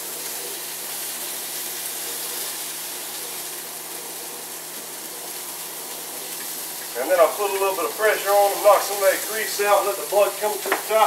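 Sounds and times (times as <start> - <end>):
burger patties sizzling in pan: 0.0 - 11.0.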